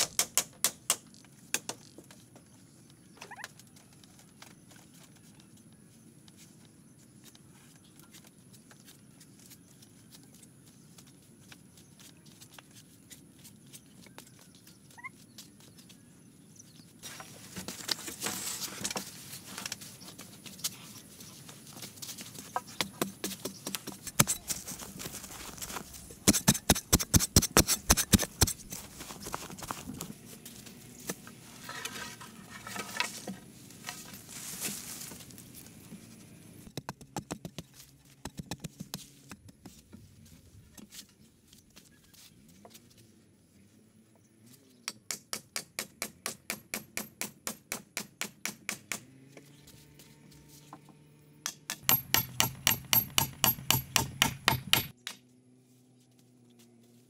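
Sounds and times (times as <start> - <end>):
hard strikes on bamboo: 0.0 - 1.8, 26.2 - 28.7, 44.9 - 49.1, 51.4 - 55.2.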